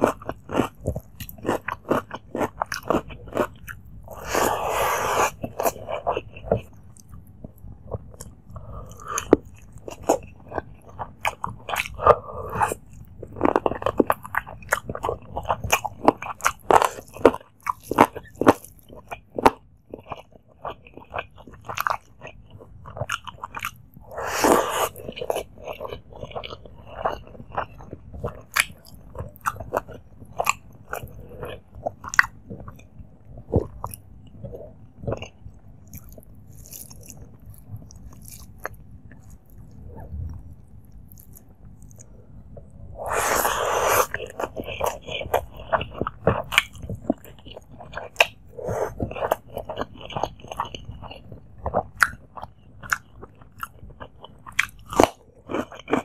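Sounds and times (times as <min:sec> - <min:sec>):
wet chewing and smacking: 0:00.0 - 0:56.0.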